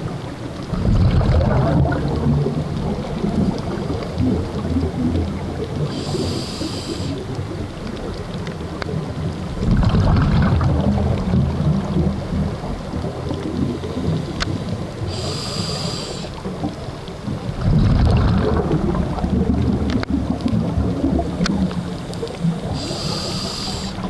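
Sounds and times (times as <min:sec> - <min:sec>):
exhaled bubbles underwater: 0:00.0 - 0:24.0
faint sharp clicks: 0:05.6 - 0:09.0, 0:13.3 - 0:14.8, 0:19.8 - 0:20.6, 0:21.4 - 0:23.2
regulator hissing inhalations: 0:05.9 - 0:07.2, 0:15.1 - 0:16.4, 0:22.6 - 0:24.0.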